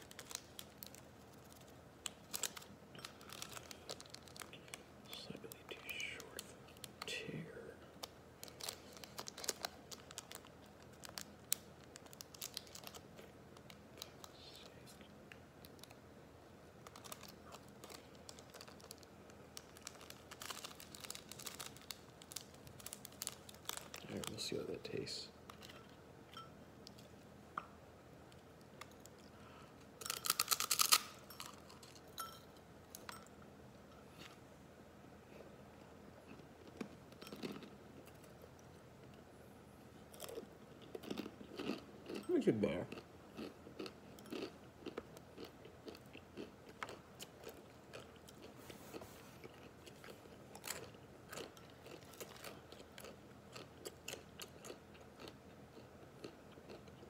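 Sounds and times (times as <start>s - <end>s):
dry noodles crunching: 0.0s - 4.8s, 8.0s - 14.3s, 16.8s - 25.8s, 30.0s - 32.3s, 40.1s - 42.3s, 42.9s - 57.0s
foil packet crinkling and tearing: 0.0s - 6.9s, 8.0s - 14.4s, 16.8s - 25.1s, 30.0s - 31.2s.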